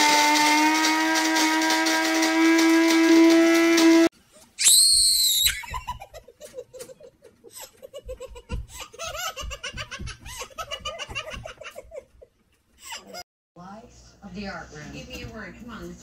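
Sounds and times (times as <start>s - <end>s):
person laughing: 5.5s - 13.2s.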